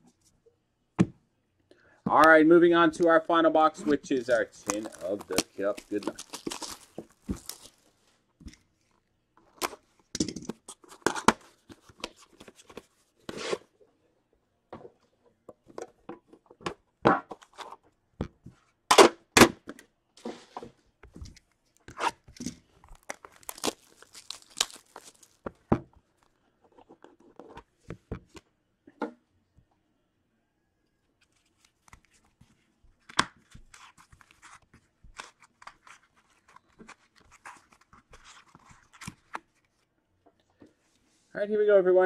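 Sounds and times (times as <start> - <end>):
shrink wrap tearing and crinkling: 3.8 - 7.9, 21.8 - 25.5
cardboard box handled: 4.0 - 7.8.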